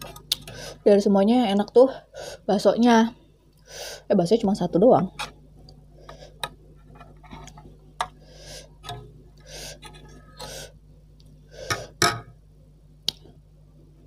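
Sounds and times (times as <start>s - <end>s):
soft eating noises: 5.2s - 12.0s.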